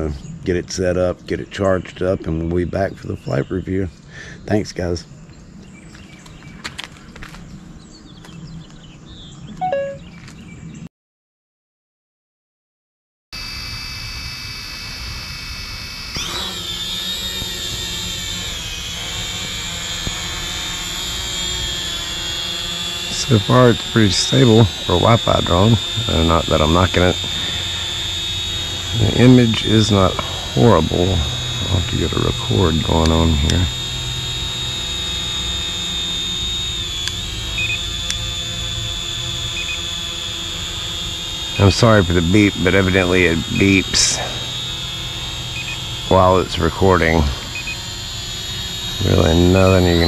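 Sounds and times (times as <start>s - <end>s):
short double beeps: 9.6s - 10.0s
drone propellers whining: 13.4s - 50.0s.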